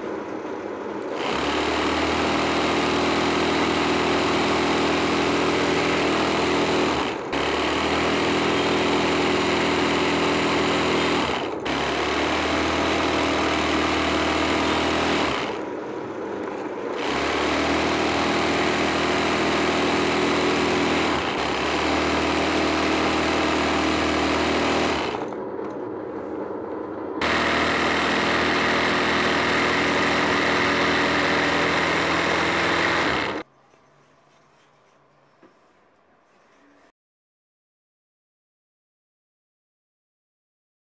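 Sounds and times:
sewing machine running: 1.1s - 15.8s, 16.6s - 25.4s, 27.2s - 33.5s.

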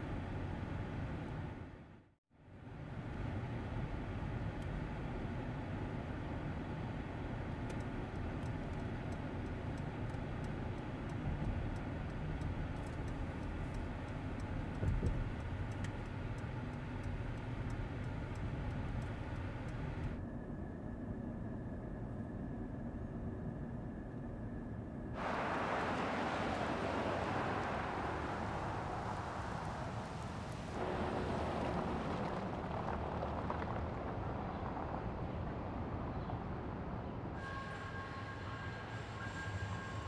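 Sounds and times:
faint ticks: 7.6s - 20.2s
car road noise rumble: 25.2s - 37.4s.

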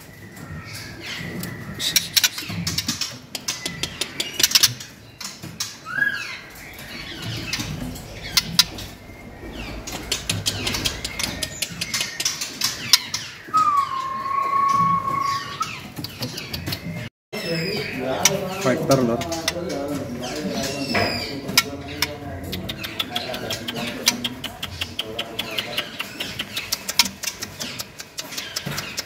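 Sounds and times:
bird whistling: 5.8s - 15.9s.

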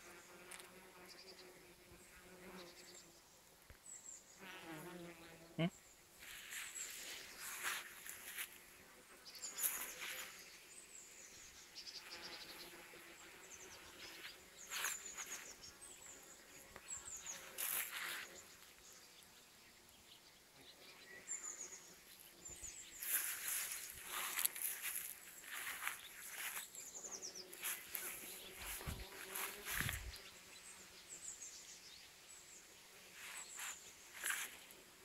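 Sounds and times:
bees buzzing: 23.0s - 30.3s.

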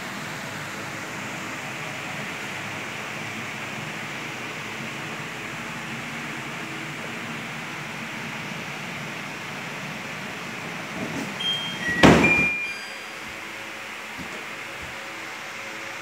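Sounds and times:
touch panel short beeps: 11.4s - 13.0s
loud rustling knock: 12.0s - 12.5s.

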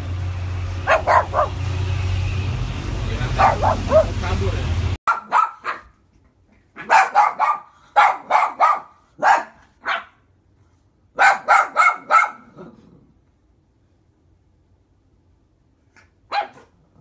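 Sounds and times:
small dog barking: 0.9s - 1.6s, 3.3s - 4.2s, 5.1s - 6.0s, 6.8s - 10.2s, 11.2s - 12.8s, 16.3s - 17.0s.

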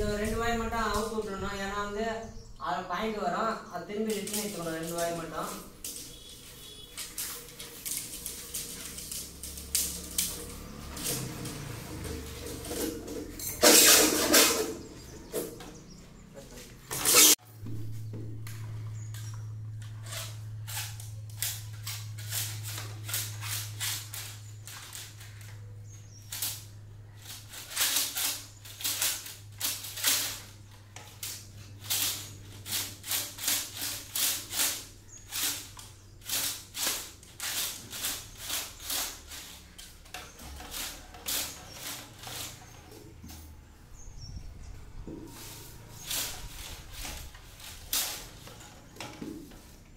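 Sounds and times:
low hum: 0.0s - 3.9s
wires scraping and rustling: 0.0s - 17.4s, 18.0s - 49.9s.

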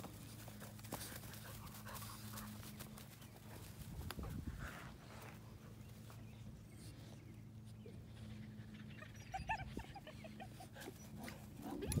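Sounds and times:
low steady hum: 0.0s - 12.0s
puppies whimpering and yipping: 7.8s - 12.0s.

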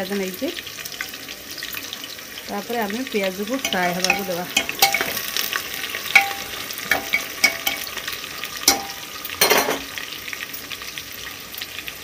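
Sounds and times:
onions sizzling in oil: 0.0s - 12.0s
metal spoon scraping pot: 3.6s - 5.4s, 6.1s - 8.0s, 8.7s - 9.9s.

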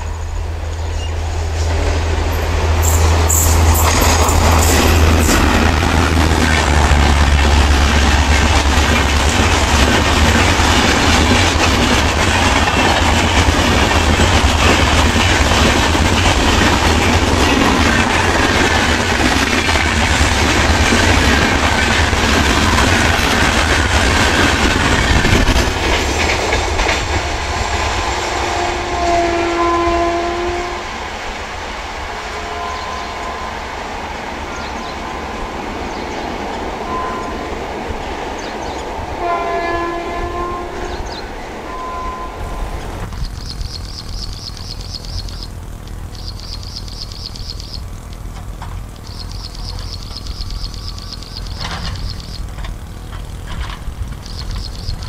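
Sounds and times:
train wheels rumbling on rails: 0.0s - 55.0s
clickety-clack over rail joints: 0.7s - 29.8s, 42.7s - 55.0s
train horn blasts: 27.6s - 31.1s, 32.1s - 35.5s, 36.7s - 38.0s, 39.1s - 42.8s.

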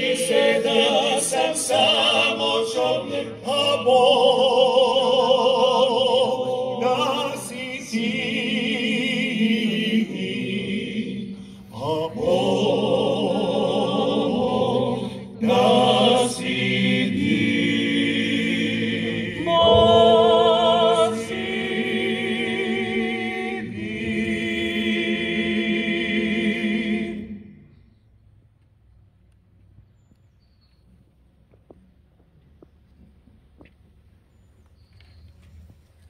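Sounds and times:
choir singing a hymn: 0.0s - 27.9s.

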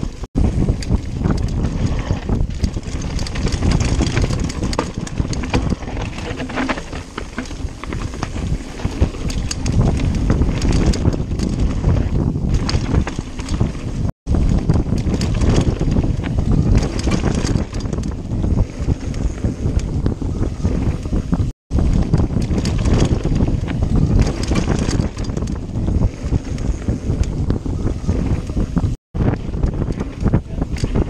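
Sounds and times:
bike rattling on rough ground: 0.0s - 31.0s
tyres rumbling on dirt: 0.0s - 31.0s
wind buffeting microphone: 0.0s - 31.0s.

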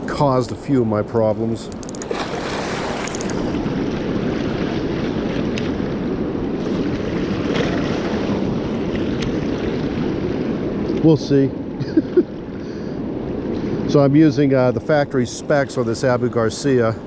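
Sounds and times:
river current rushing: 1.6s - 11.8s
faint clicks: 1.7s - 2.1s, 3.0s - 3.4s.

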